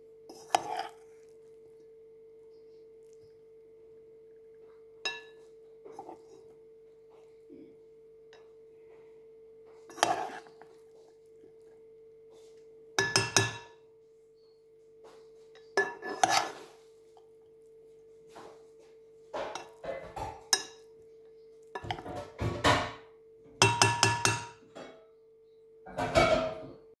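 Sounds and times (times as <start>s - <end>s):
faint steady hum: 0.0s - 25.9s
spatula scraping a pan: 0.3s - 1.3s, 5.9s - 6.5s, 9.8s - 11.1s, 15.5s - 17.2s.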